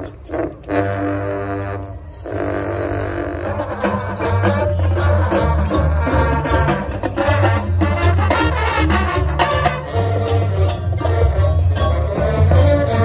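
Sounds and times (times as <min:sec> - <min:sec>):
marching band playing: 0:00.0 - 0:13.0
loud low bass notes: 0:04.0 - 0:13.0.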